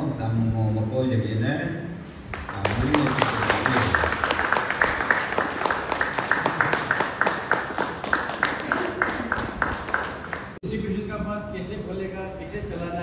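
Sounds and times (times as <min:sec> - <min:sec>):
audience applauding: 0:02.4 - 0:10.6.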